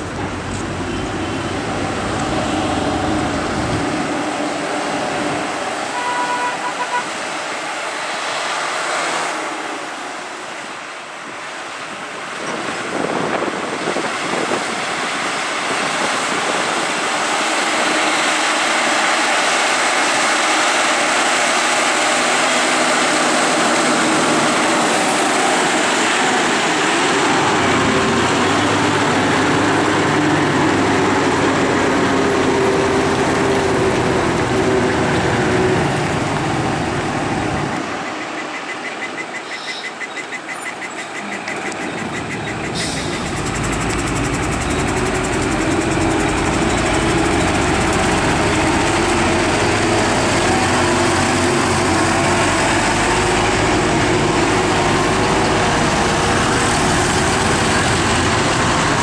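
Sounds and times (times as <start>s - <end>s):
deep engine rumble: 0.0s - 5.9s, 41.9s - 59.0s
diesel lorries driving: 0.0s - 59.0s.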